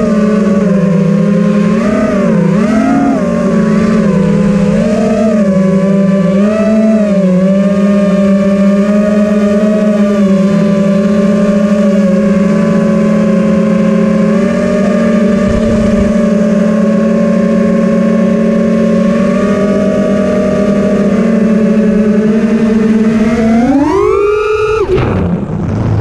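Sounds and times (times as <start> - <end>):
quadcopter motors whining: 0.0 - 26.0
low rumble: 3.1 - 6.4, 15.1 - 16.4, 24.9 - 26.0.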